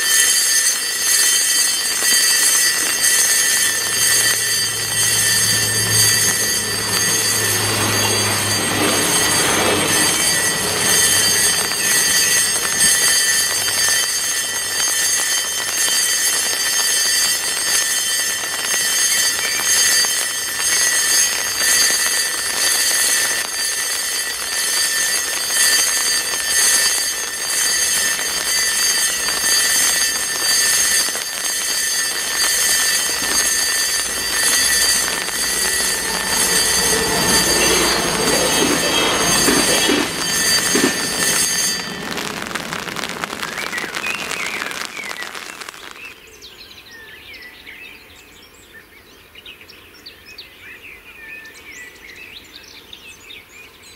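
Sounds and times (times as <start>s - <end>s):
level crossing bell ringing: 0.0s - 43.5s
low hum: 2.8s - 12.0s, 32.2s - 44.5s.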